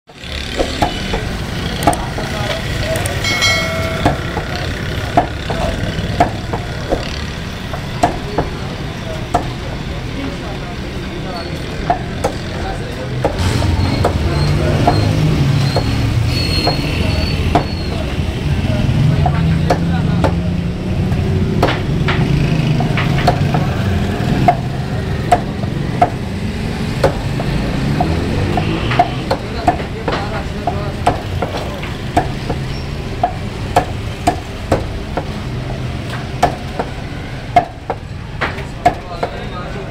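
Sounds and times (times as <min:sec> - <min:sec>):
cleaver chopping on wooden block: 0:00.5 - 0:02.3, 0:03.7 - 0:08.6, 0:09.3 - 0:09.6, 0:17.5 - 0:17.8, 0:19.2 - 0:20.4, 0:21.5 - 0:35.4, 0:36.0 - 0:39.4.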